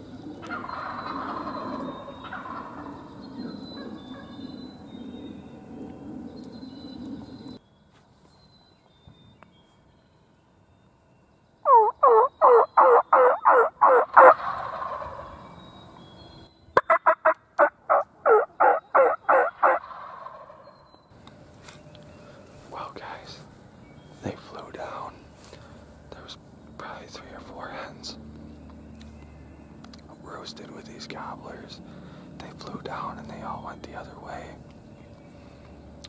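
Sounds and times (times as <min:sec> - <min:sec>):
turkey yelping: 0:00.4 - 0:03.0, 0:11.7 - 0:15.4, 0:16.8 - 0:20.8.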